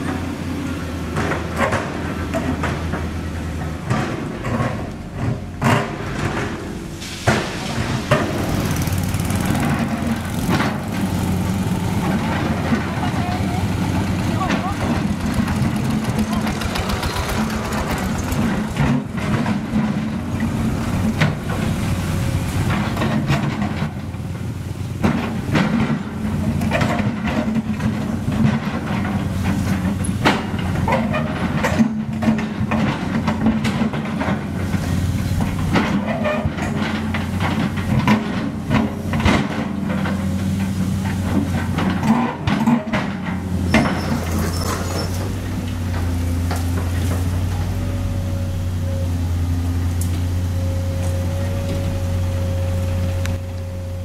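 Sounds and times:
broken asphalt clattering: 0.0 - 47.9
dump truck diesel engine: 0.0 - 54.0
excavator diesel engine under load: 0.0 - 54.0
scooter engines passing: 7.9 - 19.2.

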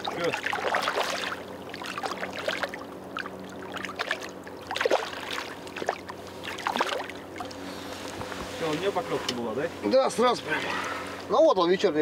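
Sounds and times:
fish splashing in water: 0.0 - 7.6
steady low hum: 0.0 - 12.0.

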